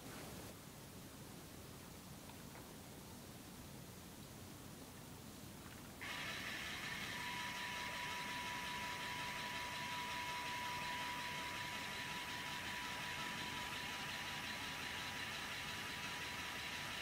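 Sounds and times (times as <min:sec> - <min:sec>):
electric motors whining: 0:06.0 - 0:17.0.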